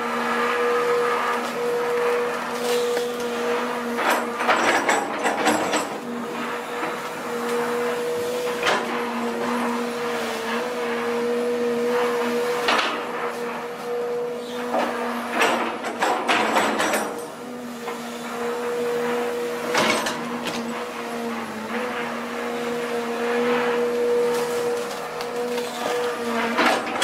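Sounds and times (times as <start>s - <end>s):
excavator whine: 0.0s - 27.0s
knocking and clatter: 15.4s - 17.2s.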